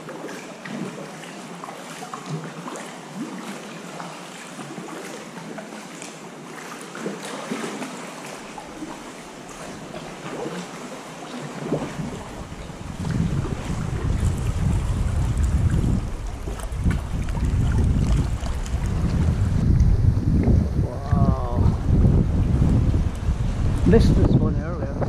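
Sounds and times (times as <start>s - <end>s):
paddle splashes: 0.0s - 24.2s
water lapping around a kayak: 0.0s - 25.0s
wind rumble on microphone: 11.5s - 25.0s.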